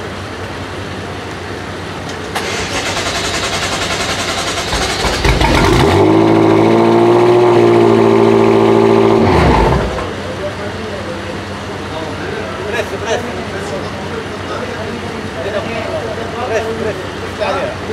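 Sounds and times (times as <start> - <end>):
car engine idling: 0.0 - 15.9
starter motor cranking: 2.4 - 6.0.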